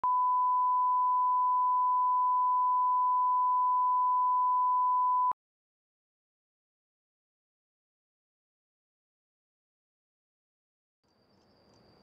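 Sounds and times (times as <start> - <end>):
click: 11.0 - 12.0.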